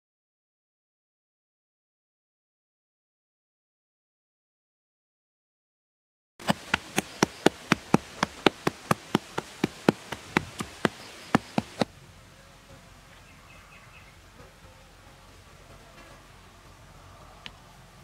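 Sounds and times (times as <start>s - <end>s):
rapid sharp clicks: 6.4s - 11.9s
faint steady background noise: 6.4s - 18.0s.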